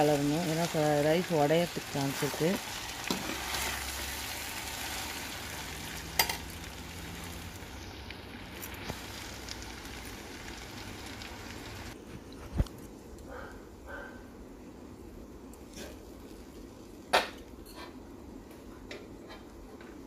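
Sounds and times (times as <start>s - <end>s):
rice sizzling in a pan: 0.0s - 12.0s.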